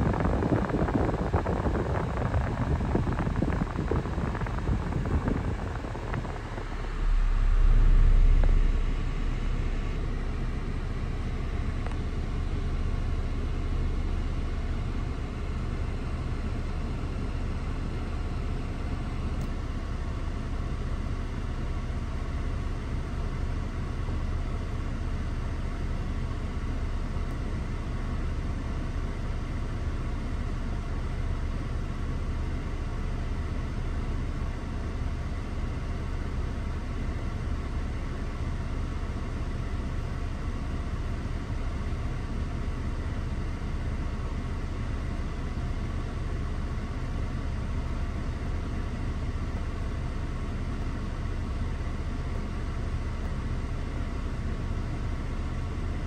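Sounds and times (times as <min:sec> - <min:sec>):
rushing noise: 0:00.0 - 0:10.2
deep rumble: 0:00.0 - 0:24.0
car engine idling: 0:00.0 - 0:28.3.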